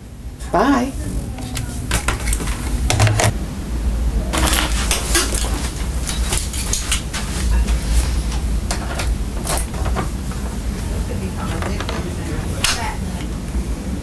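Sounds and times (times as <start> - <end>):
low rumble: 0.3 - 4.9
office equipment clicking and clattering: 1.9 - 3.4, 4.4 - 10.8, 11.4 - 12.9.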